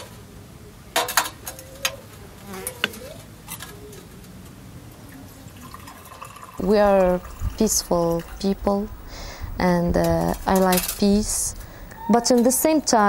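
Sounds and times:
faint wavering buzz: 6.6s - 13.0s.

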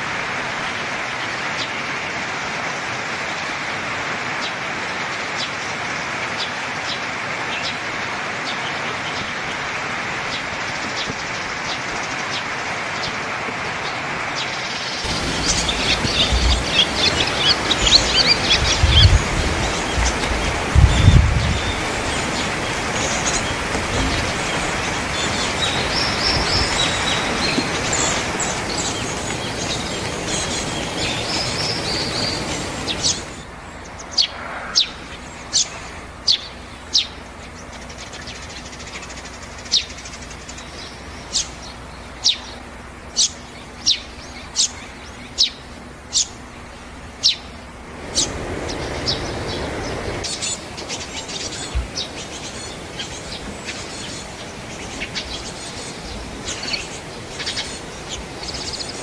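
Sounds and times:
bird chirping: 14.4s - 59.0s
background hiss: 14.7s - 59.0s.

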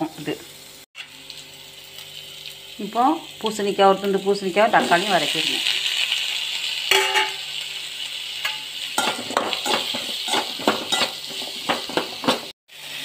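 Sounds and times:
vegetables sizzling in oil: 0.0s - 13.0s
ringing metal clank: 6.9s - 7.4s
utensil scraping pan: 8.4s - 12.5s.

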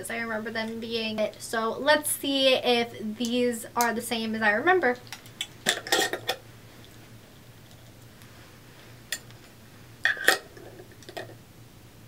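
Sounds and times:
faint low hum: 0.0s - 12.0s
glass jar and metal lid clinking: 5.7s - 6.4s, 10.1s - 11.4s.

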